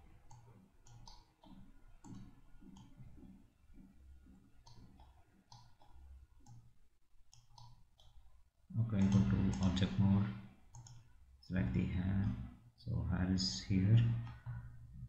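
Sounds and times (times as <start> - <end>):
faint computer mouse clicks: 4.6 - 6.7, 7.3 - 8.2, 10.7 - 11.0.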